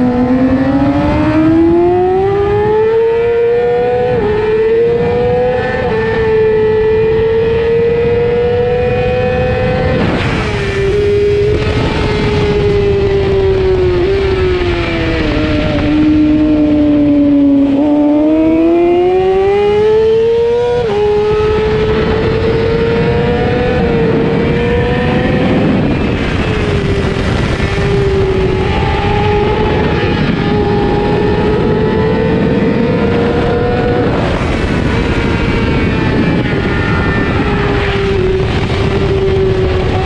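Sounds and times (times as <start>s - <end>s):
motorcycle engine at high revs: 0.0s - 40.0s
wind rush: 0.0s - 40.0s.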